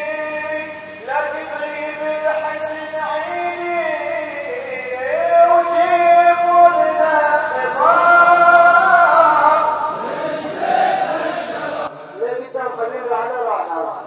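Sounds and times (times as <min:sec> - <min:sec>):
man chanting in long notes: 0:00.0 - 0:10.0.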